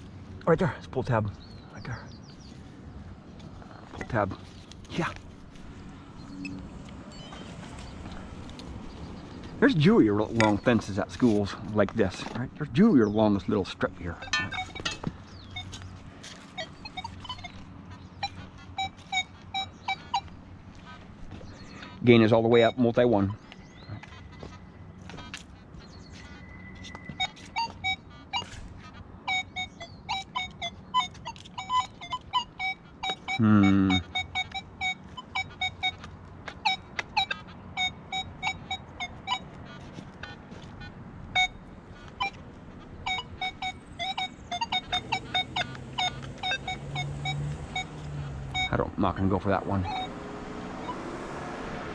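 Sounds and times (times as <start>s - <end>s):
metal detector beeps: 6.2s - 8.0s, 13.8s - 17.6s, 18.2s - 20.4s, 22.5s - 23.4s, 26.4s - 28.6s, 29.3s - 39.6s, 40.2s - 41.6s, 42.2s - 42.4s, 43.0s - 50.2s, 50.8s - 51.2s.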